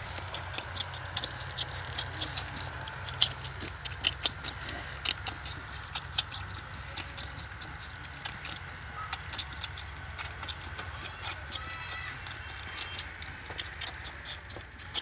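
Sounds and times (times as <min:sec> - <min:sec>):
lamb sucking from bottle: 0:00.0 - 0:15.0
steady low hum: 0:00.0 - 0:15.0.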